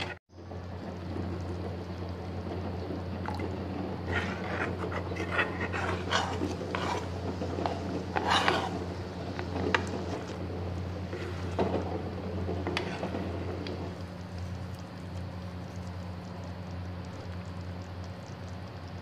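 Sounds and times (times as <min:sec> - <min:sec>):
spoon scraping pan: 0:00.0 - 0:00.2, 0:04.0 - 0:10.4, 0:11.0 - 0:14.0
steady low hum: 0:00.0 - 0:19.0.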